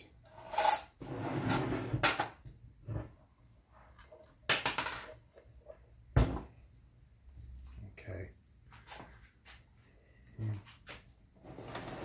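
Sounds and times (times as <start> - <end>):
metal box scraping: 11.4 - 12.0.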